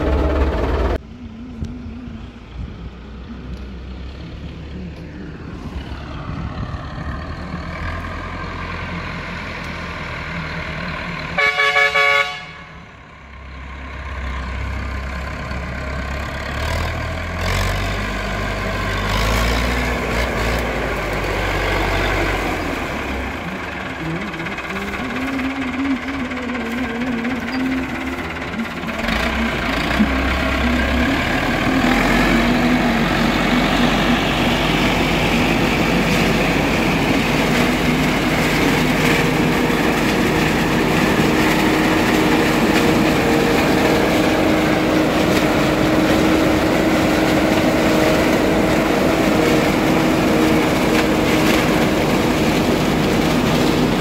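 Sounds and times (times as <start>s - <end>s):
tractor diesel engine running: 0.0s - 54.0s
horn: 11.4s - 12.7s.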